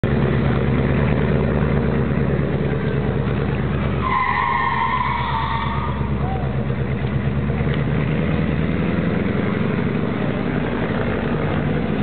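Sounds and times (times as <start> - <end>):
motorcycle engine idling: 0.0 - 4.0, 5.9 - 7.8.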